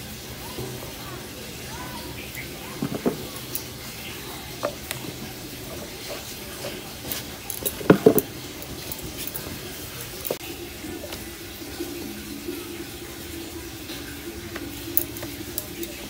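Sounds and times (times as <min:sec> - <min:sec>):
bowls clinking and knocking: 0:02.0 - 0:10.4.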